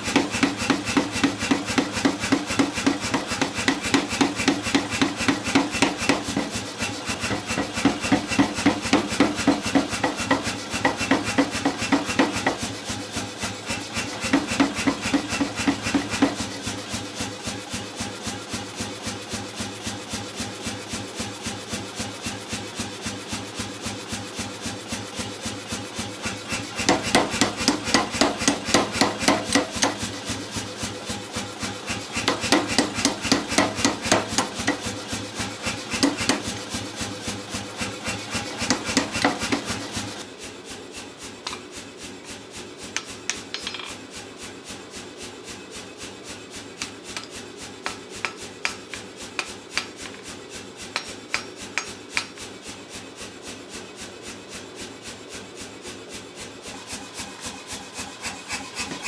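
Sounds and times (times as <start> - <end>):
hand hammer on anvil: 0.0 - 12.7, 13.8 - 16.6, 26.5 - 30.2, 31.9 - 35.0, 35.7 - 36.7, 38.1 - 40.0, 46.8 - 50.2, 50.8 - 52.4
power hammer pounding steel: 0.0 - 20.5, 21.2 - 40.2, 46.7 - 52.6, 56.4 - 59.0.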